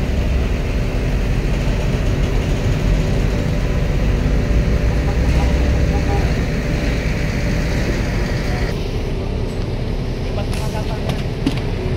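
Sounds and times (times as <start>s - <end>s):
heavy vehicle engine running: 0.0s - 11.9s.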